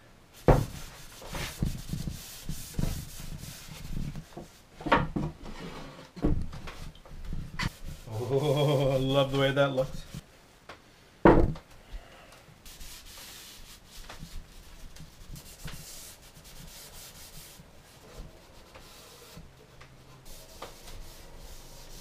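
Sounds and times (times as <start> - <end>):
cloth scrubbing wood: 0.5 - 4.6, 12.7 - 19.5, 20.1 - 22.0.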